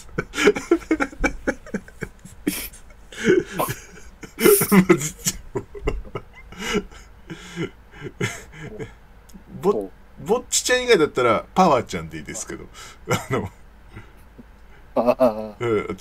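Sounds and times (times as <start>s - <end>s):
men talking and chuckling: 0.0s - 9.0s, 13.0s - 14.2s, 15.0s - 16.0s.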